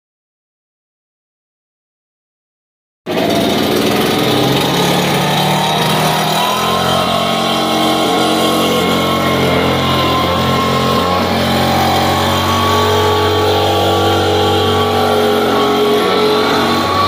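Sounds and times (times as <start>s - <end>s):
leaf blower engine running: 3.1s - 17.0s.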